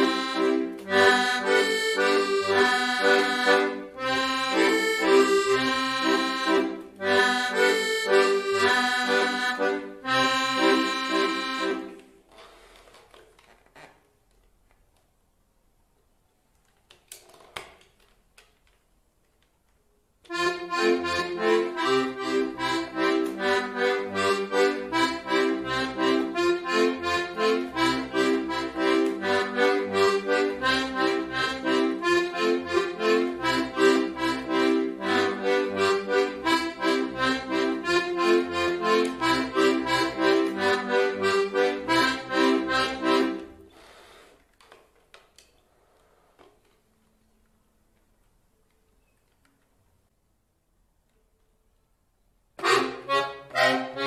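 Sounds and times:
accordion playing: 0.0 - 12.7, 20.2 - 44.4, 52.6 - 54.0
faint handling sounds: 11.9 - 15.3.

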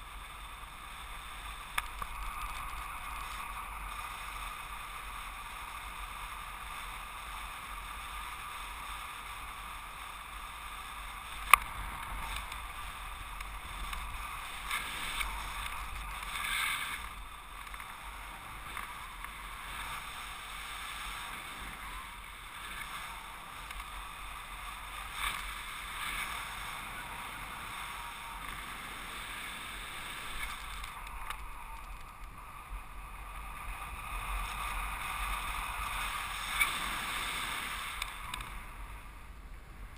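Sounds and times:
airflow rushing over camera: 10.4 - 39.9.

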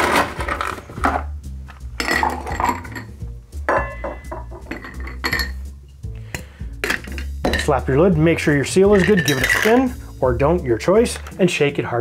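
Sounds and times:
ice cubes clinking in glass: 2.0 - 3.1, 8.9 - 9.9.

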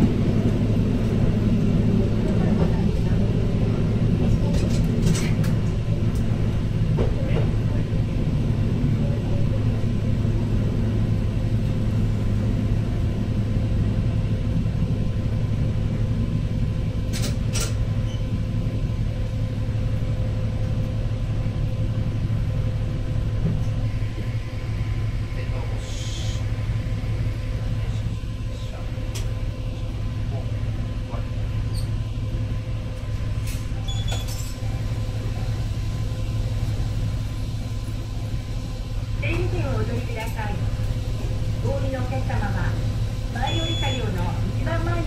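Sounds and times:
railcar engine drone: 0.0 - 45.0
train wheel rumble: 0.0 - 45.0.

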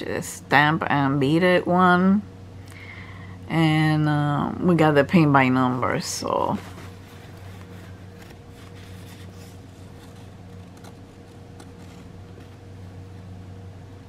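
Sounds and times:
low background hum: 0.0 - 14.0
paper rustling: 6.4 - 12.7.

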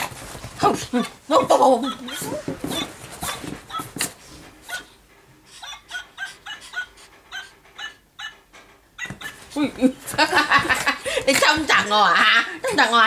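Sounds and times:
small dog yipping: 1.8 - 4.1, 5.6 - 8.4, 9.0 - 9.4.

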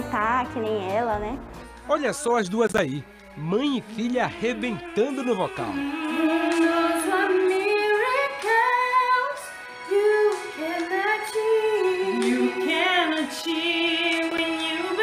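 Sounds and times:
two women singing duet: 5.7 - 15.0.

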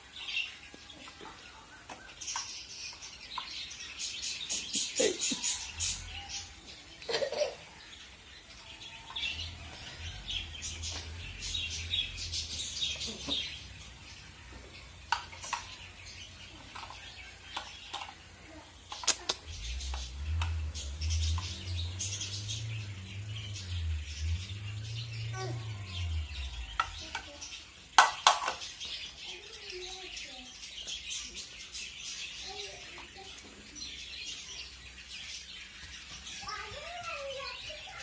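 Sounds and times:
birds chirping: 0.0 - 38.0
low rumble: 8.8 - 15.0, 19.3 - 28.0.

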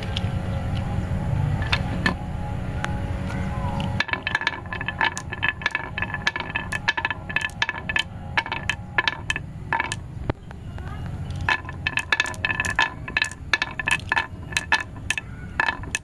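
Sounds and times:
marbles clinking on wooden rail: 3.8 - 16.0.

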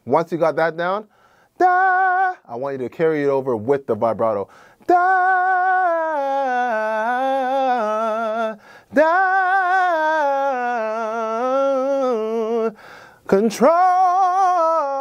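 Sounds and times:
man singing a vocal riff: 0.0 - 15.0
singer breath: 1.1 - 1.6, 4.5 - 4.9, 8.6 - 8.9, 12.8 - 13.3.

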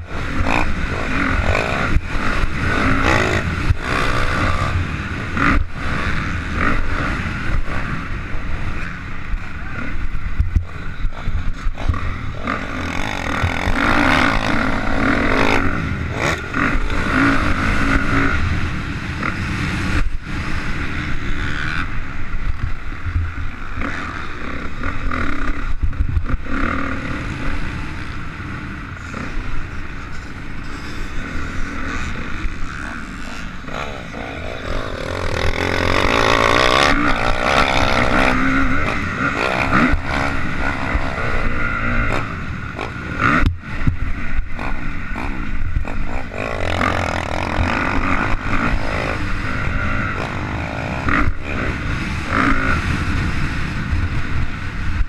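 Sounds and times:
wind buffeting microphone: 0.0 - 23.7
dirt bike engine revving: 0.0 - 55.0.

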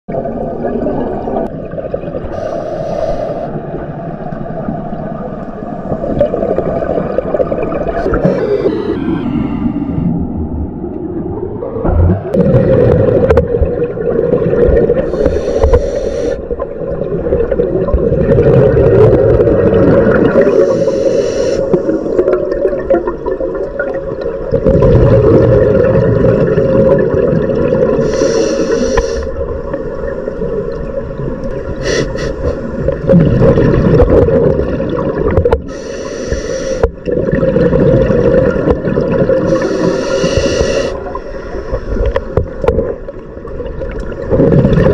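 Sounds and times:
scuba regulator hissing inhalation: 2.4 - 3.5, 8.2 - 9.2, 15.1 - 16.4, 20.3 - 22.2, 28.0 - 29.4, 31.8 - 32.7, 35.7 - 36.9, 39.4 - 42.3
bubbling exhaled air underwater: 5.8 - 10.4, 11.1 - 44.9.

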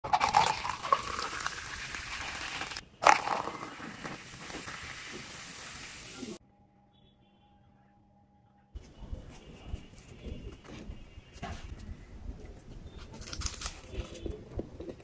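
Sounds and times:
drink fizzing: 0.0 - 6.4
soft drink pouring and splashing: 0.0 - 6.4.

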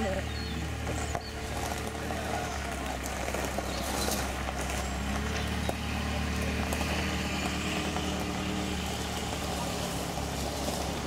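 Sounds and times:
car engine running at low revs: 0.0 - 11.0.

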